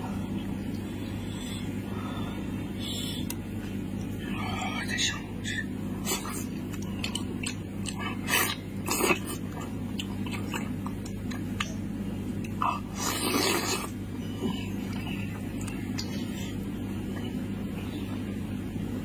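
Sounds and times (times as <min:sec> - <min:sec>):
steady low hum: 0:00.0 - 0:19.0
man chewing and smacking: 0:06.0 - 0:17.4.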